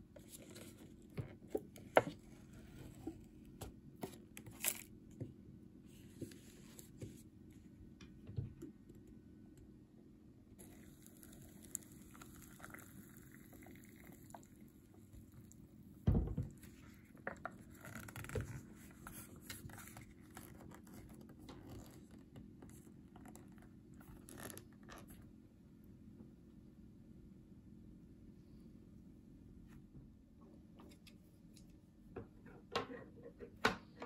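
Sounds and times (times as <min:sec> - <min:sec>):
water pouring into paper cup: 0:10.6 - 0:15.6
loud thump: 0:16.1 - 0:16.5.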